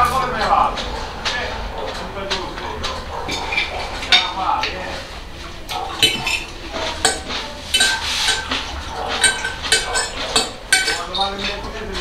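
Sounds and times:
forks clinking on ceramic plates: 5.7 - 11.4.

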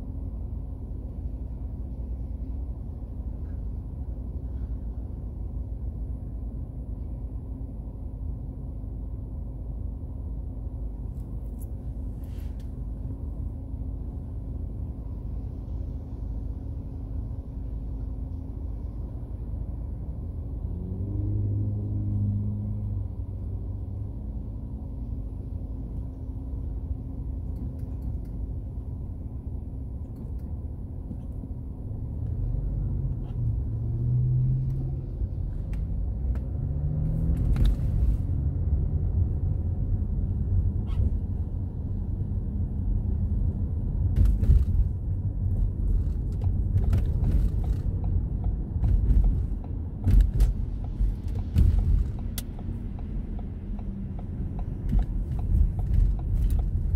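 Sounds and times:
road rumble: 0.0 - 56.9
car engine accelerating: 20.4 - 25.2, 31.7 - 56.9.

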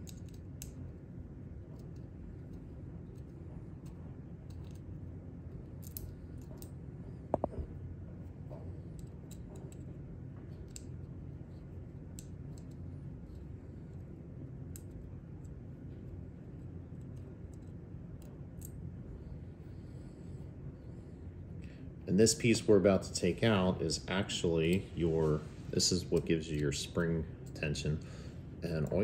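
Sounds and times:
small metal parts clicking: 5.8 - 6.7.

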